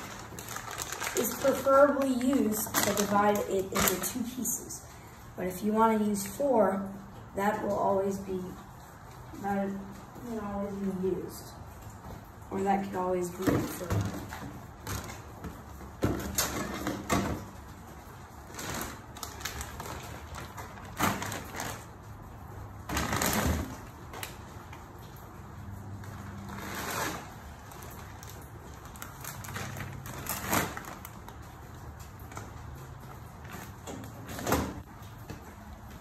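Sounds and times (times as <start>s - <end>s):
plastic bags crinkling: 0.0s - 4.4s, 12.5s - 35.2s.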